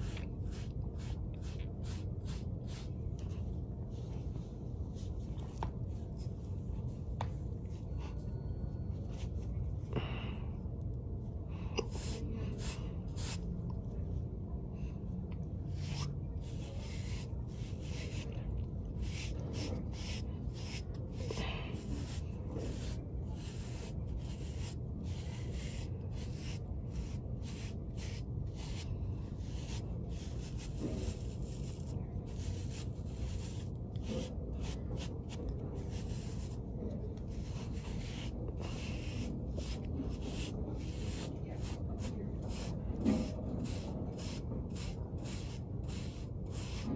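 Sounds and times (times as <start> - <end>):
brush swishing over hair: 15.7 - 46.9.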